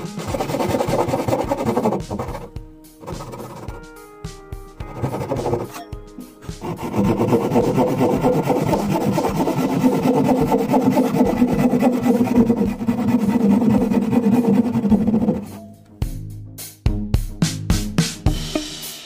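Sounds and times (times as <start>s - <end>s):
handsaw cutting wood: 0.0s - 3.8s, 4.8s - 15.7s
background music: 0.0s - 19.0s.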